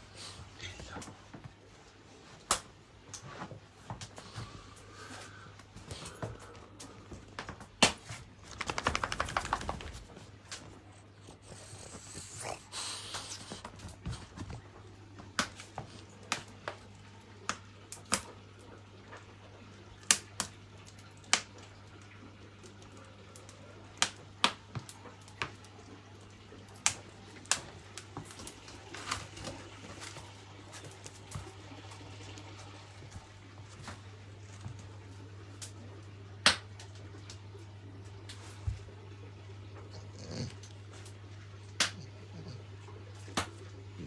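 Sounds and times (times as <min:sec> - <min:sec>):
low electrical hum: 0:00.0 - 0:44.0
wood fire crackling and popping: 0:02.4 - 0:04.4, 0:05.0 - 0:10.7, 0:13.1 - 0:38.8.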